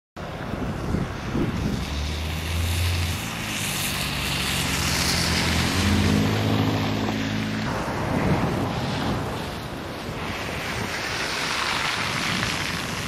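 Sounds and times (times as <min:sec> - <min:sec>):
wind gusting over microphone: 0:00.2 - 0:13.0
car engine driving past: 0:01.6 - 0:09.6.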